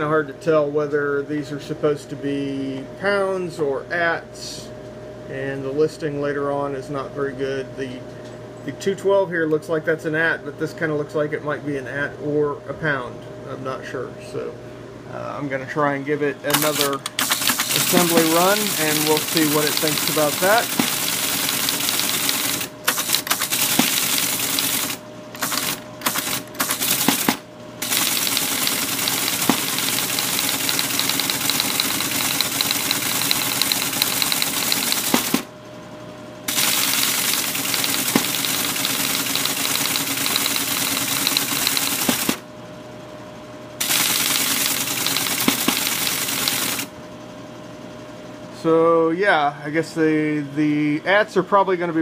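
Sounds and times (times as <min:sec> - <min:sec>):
teleprinter mechanical clatter: 0:16.5 - 0:35.5, 0:36.5 - 0:42.4, 0:43.8 - 0:46.9
motor humming: 0:16.5 - 0:35.8, 0:36.4 - 0:42.5, 0:43.8 - 0:47.1.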